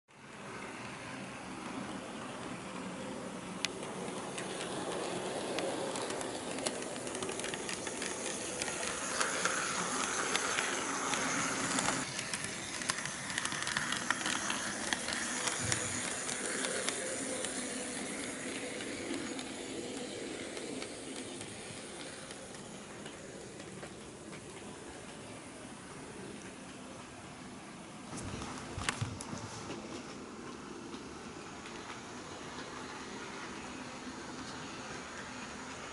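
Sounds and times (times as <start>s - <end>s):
small clicks of wheels on track: 0.8s - 25.6s, 28.1s - 35.9s
model train motor whirr: 2.4s - 24.7s.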